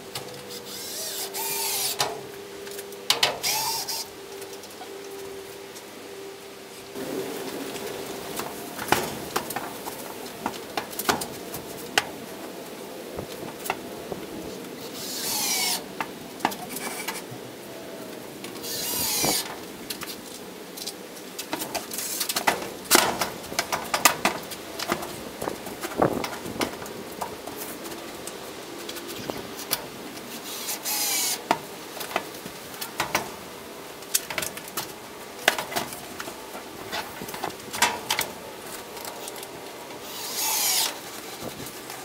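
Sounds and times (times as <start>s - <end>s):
short rasping bursts: 0.6s - 2.2s, 14.8s - 15.9s, 18.6s - 19.5s, 30.4s - 31.4s, 40.0s - 41.6s.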